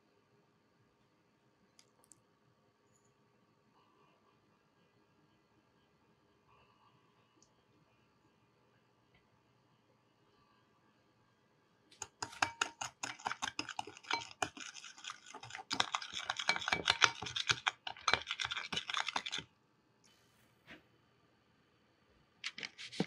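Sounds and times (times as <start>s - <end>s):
metal spoon stirring in glass bowl: 12.0s - 19.5s.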